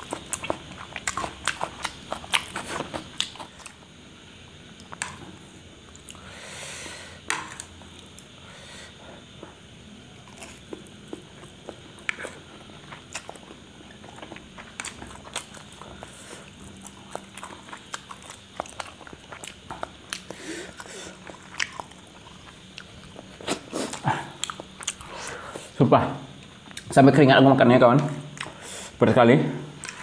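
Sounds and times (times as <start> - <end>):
wet chewing and slurping: 0.0 - 3.8, 10.3 - 25.2.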